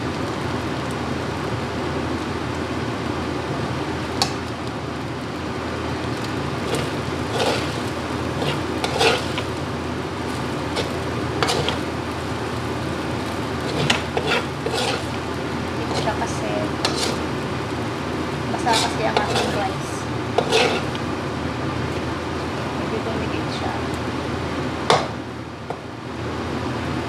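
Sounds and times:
frying hiss: 0:00.0 - 0:27.0
spatula scraping metal wok: 0:06.6 - 0:09.6, 0:10.3 - 0:11.9, 0:13.6 - 0:17.3, 0:18.6 - 0:21.0.

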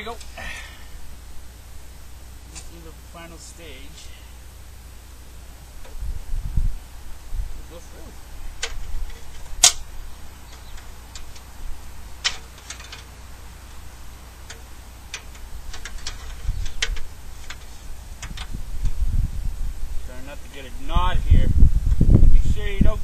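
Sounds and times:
low rumble: 0:00.0 - 0:23.0.

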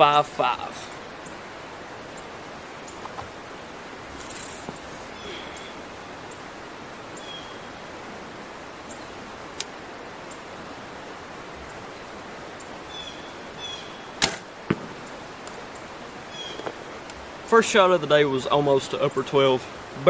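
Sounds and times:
bow string release crack: 0:14.2 - 0:14.5
arrow striking target: 0:14.2 - 0:15.0.

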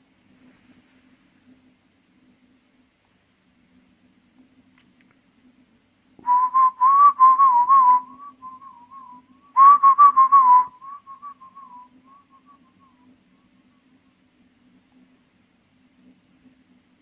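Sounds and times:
low steady hum: 0:00.0 - 0:17.0
wavering whistle-like tone: 0:06.3 - 0:13.1.

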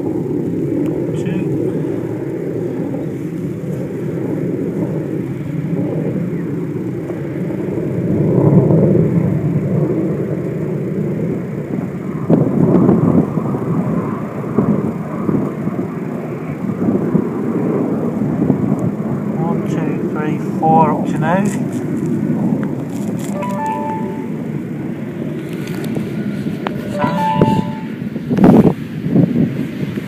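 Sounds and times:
low outdoor rumble: 0:00.0 - 0:10.6.

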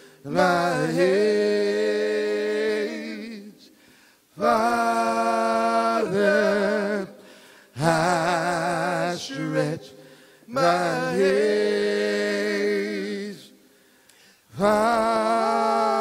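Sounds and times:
male vocal trio singing a cappella: 0:00.0 - 0:16.0.

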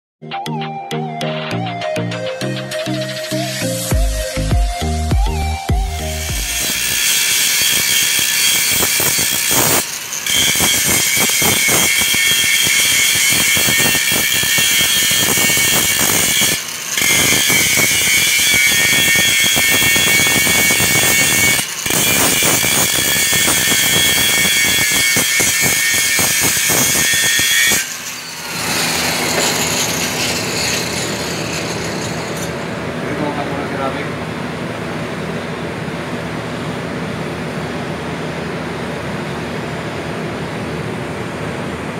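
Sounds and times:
angle grinder grinding metal: 0:02.6 - 0:33.5.

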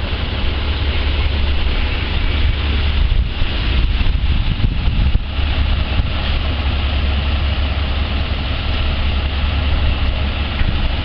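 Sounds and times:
excavator diesel engine idling: 0:00.0 - 0:11.0.

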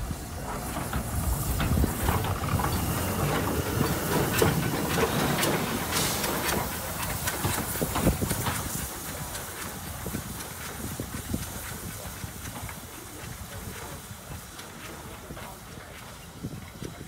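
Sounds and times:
locomotive wheels clanking on rails: 0:00.0 - 0:17.0
steam hissing: 0:00.0 - 0:17.0.

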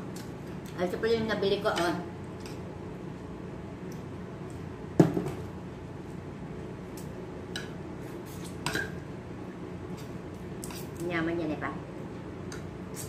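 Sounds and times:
plastic bowl knocking on table: 0:05.0 - 0:05.4.

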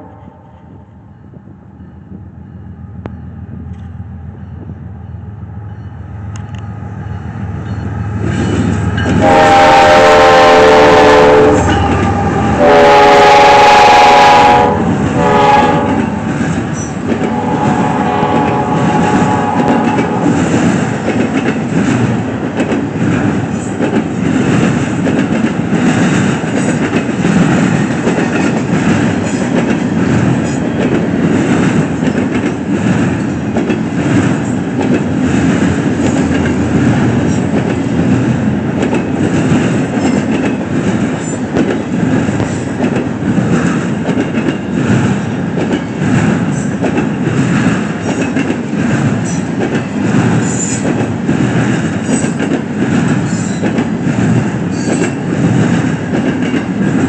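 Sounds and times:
locomotive rumble: 0:00.0 - 0:57.0
locomotive air horn blasts: 0:09.1 - 0:16.1, 0:17.3 - 0:20.3.

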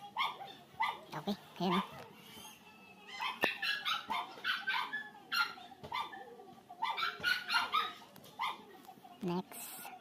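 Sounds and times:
dog barking: 0:00.1 - 0:02.0, 0:03.2 - 0:08.7.

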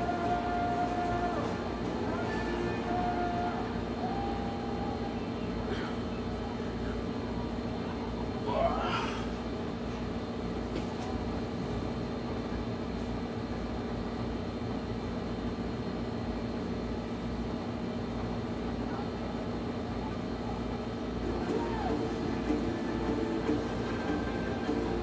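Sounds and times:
appliance motor hum: 0:21.2 - 0:25.0.

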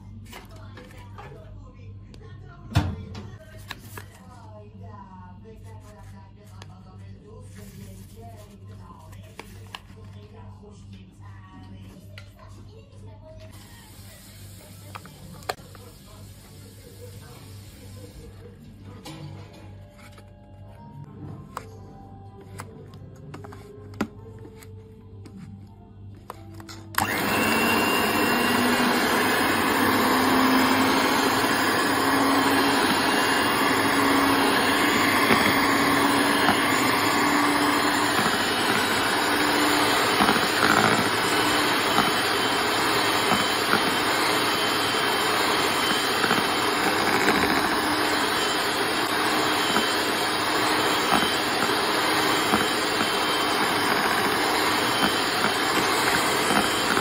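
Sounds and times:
electric hand mixer whirring: 0:26.5 - 0:57.0.

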